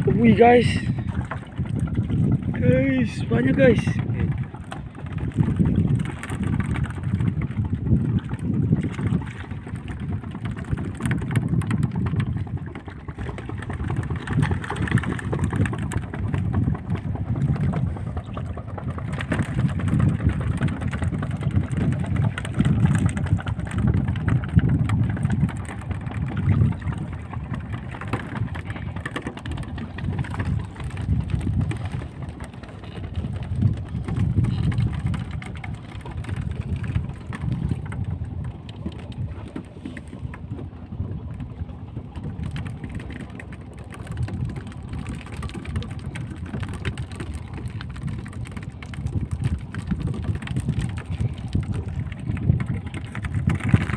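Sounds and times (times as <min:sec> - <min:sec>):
water against boat hull: 0:00.0 - 0:53.9
wind buffeting microphone: 0:00.0 - 0:53.9.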